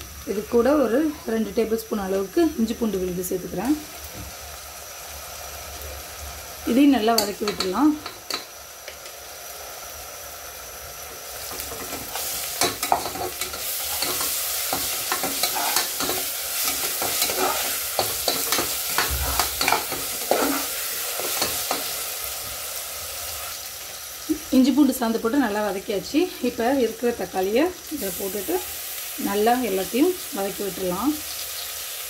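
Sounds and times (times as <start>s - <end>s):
onions sizzling in oil: 0.0s - 32.0s
metal spatula scraping a pot: 11.5s - 21.9s.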